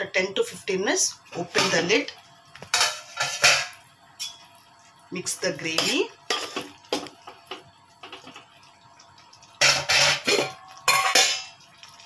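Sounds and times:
spoon clattering on pot: 9.6s - 11.6s
spoon scraping pot: 9.6s - 11.6s.

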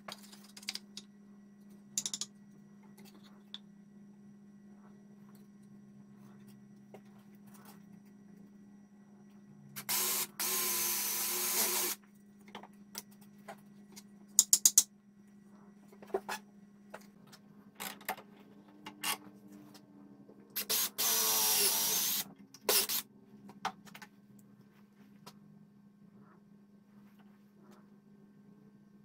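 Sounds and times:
cordless drill motor whine: 9.8s - 12.0s, 20.6s - 23.0s.

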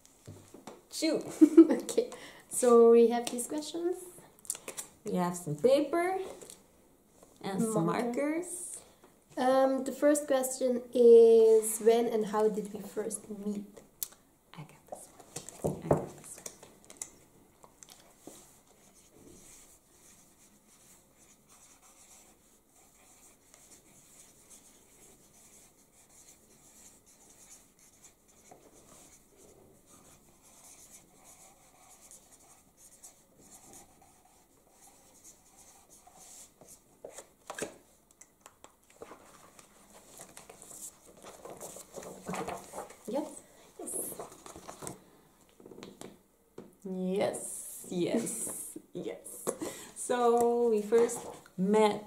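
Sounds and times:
markers scratching on paper: 18.3s - 37.3s.

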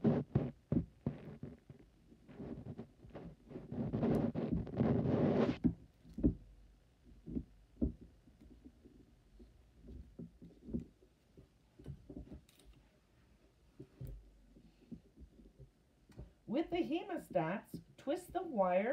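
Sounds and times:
rubbing rustle of gloved hands: 0.0s - 5.7s
soft knocks and taps: 5.6s - 12.7s.

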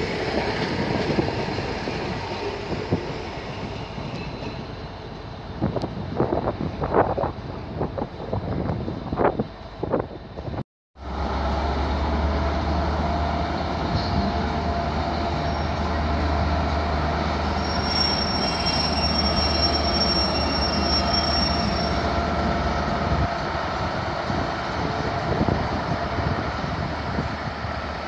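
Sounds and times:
wind noise: 0.0s - 10.6s, 21.4s - 28.0s
metal wheel squeal: 17.5s - 22.1s.

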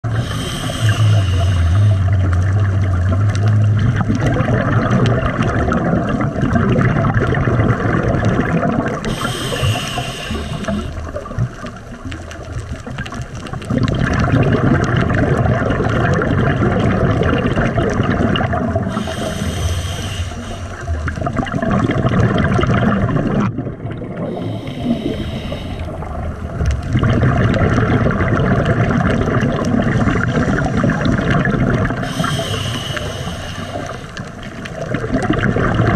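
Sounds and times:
exhaled bubbles rushing: 0.0s - 35.9s
hissing regulator inhalation: 0.1s - 2.1s, 9.0s - 11.2s, 18.9s - 21.0s, 24.2s - 26.1s, 32.0s - 34.4s.

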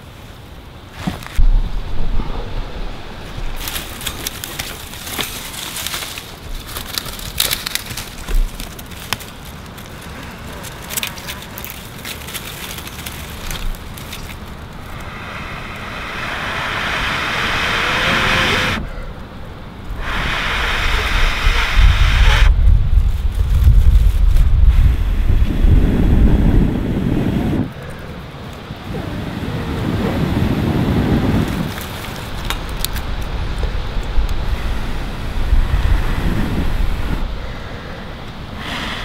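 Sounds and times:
rushing hiss: 1.0s - 19.2s, 19.9s - 26.3s, 34.4s - 39.0s
wind buffeting microphone: 1.3s - 5.7s, 6.3s - 28.0s, 28.7s - 39.0s
campfire crackling and popping: 3.2s - 24.8s, 30.9s - 34.6s.

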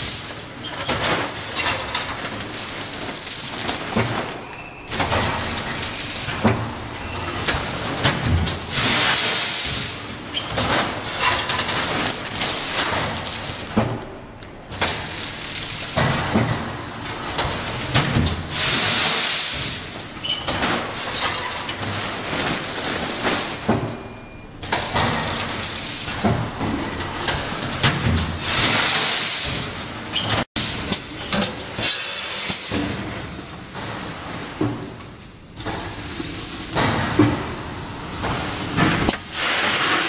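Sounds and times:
packing machine clatter: 0.0s - 40.0s.

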